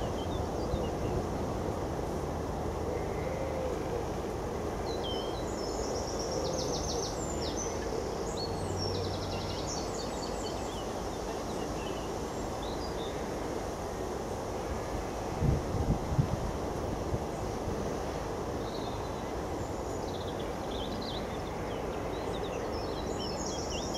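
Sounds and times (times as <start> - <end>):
songbird trilling and chirping: 18.6 - 23.9.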